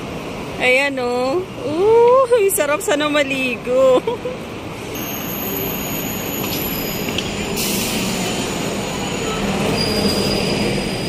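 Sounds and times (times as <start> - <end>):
city traffic noise: 0.0 - 11.0.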